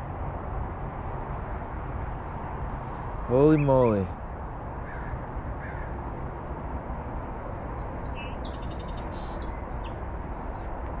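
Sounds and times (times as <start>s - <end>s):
steady outdoor hiss: 0.0s - 11.0s
small birds chirping: 2.9s - 4.2s, 7.2s - 10.6s.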